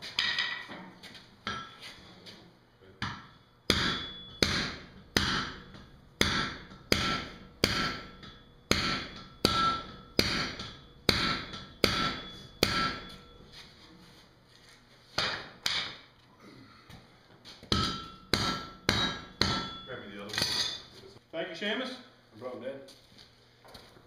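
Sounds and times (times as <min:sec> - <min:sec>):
hammer blows on anvil: 0:03.0 - 0:13.5, 0:17.7 - 0:20.9.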